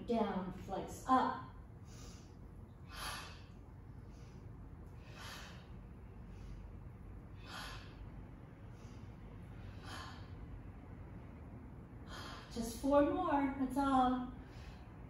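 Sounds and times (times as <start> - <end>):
faint low hum: 0.0 - 15.0
woman breathing hard: 1.7 - 11.2, 11.8 - 12.6, 14.3 - 15.0.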